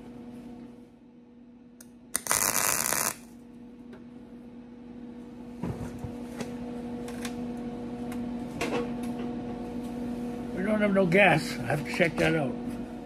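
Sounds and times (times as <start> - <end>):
low electrical hum: 0.0 - 13.0
welder arc crackling: 1.8 - 3.4.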